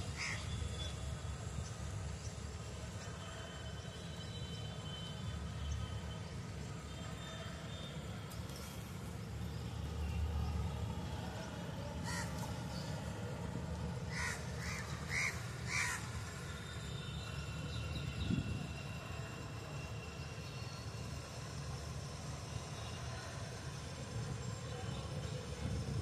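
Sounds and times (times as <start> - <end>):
crow cawing: 0.2 - 0.4, 12.0 - 12.3, 14.1 - 16.0.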